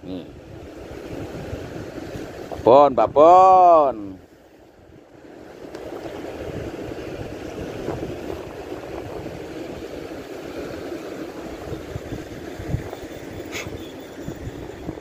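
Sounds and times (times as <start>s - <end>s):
wind on microphone: 0.0s - 3.7s, 5.7s - 15.0s
sea washing over rocks: 5.4s - 13.8s.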